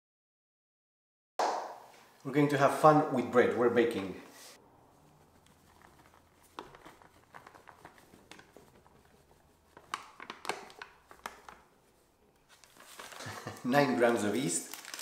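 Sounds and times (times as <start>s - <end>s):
paper packet crinkling: 4.9s - 15.0s.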